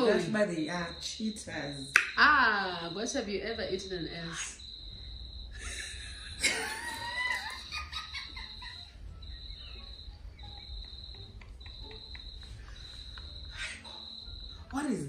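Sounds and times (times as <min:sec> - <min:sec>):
women laughing: 0:05.6 - 0:09.1, 0:10.4 - 0:13.8.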